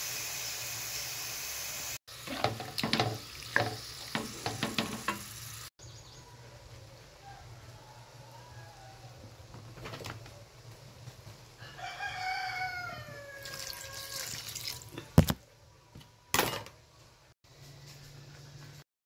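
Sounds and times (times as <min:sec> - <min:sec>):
pork frying in a wok: 0:00.0 - 0:05.7, 0:11.9 - 0:14.9
rooster crowing: 0:07.2 - 0:09.4, 0:11.6 - 0:14.4
liquid pouring: 0:13.4 - 0:15.4.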